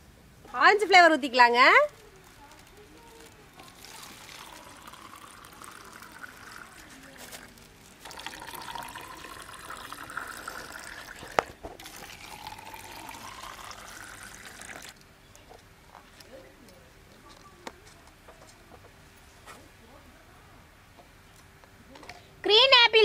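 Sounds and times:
liquid pouring into plastic cups: 1.8s - 15.1s.

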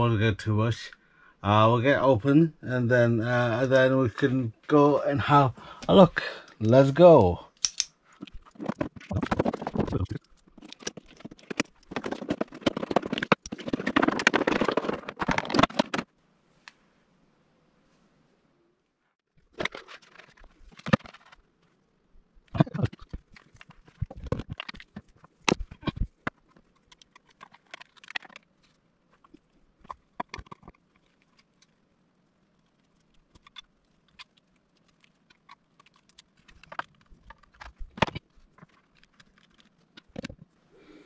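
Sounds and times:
plastic pieces clicking and knocking: 7.6s - 16.1s, 22.6s - 28.6s, 32.6s - 40.6s
plastic packaging crinkling: 19.5s - 21.4s.

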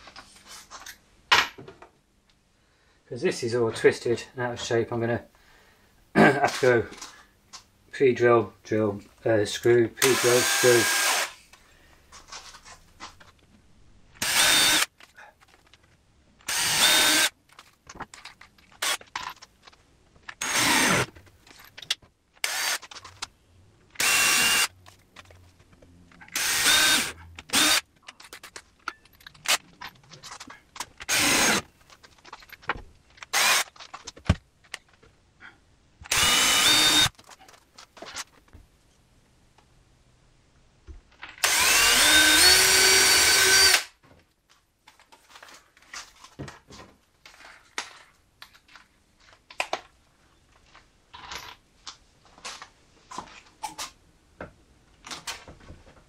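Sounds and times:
cordless drill bursts: 10.0s - 11.4s, 14.2s - 14.9s, 16.5s - 17.3s, 20.4s - 21.1s, 22.4s - 22.8s, 24.0s - 24.7s, 26.3s - 27.9s, 31.0s - 31.7s, 33.3s - 33.7s, 36.1s - 37.1s, 41.4s - 43.9s.

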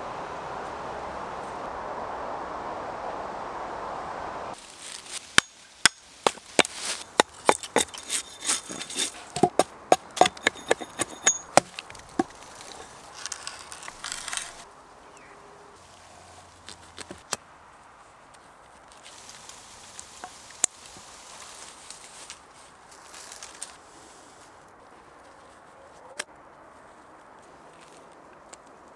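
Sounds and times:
chisel scraping wood: 6.2s - 14.6s
hammer knocking chisel into wood: 9.4s - 12.3s.

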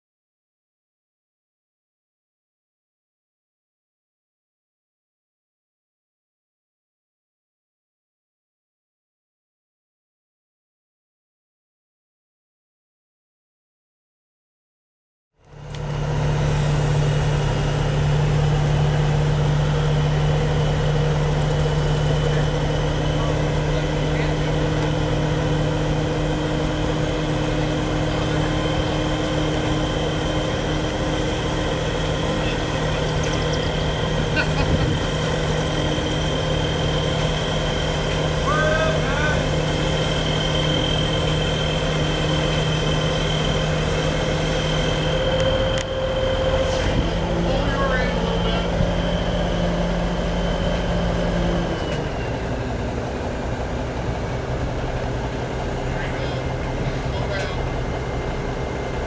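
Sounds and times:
heavy machinery engine droning: 15.4s - 59.0s.

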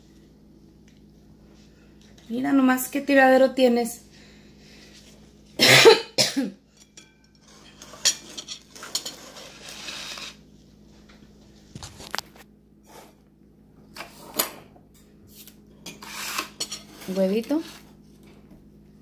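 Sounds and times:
person coughing: 5.6s - 6.6s.

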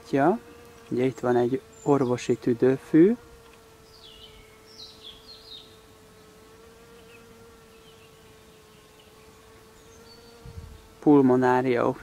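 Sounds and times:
insect wings buzzing: 0.0s - 12.0s
faint bird chirps: 3.8s - 5.8s.

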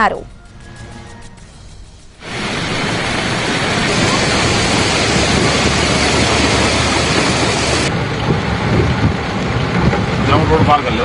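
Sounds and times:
floodwater rushing along street: 2.2s - 11.0s.

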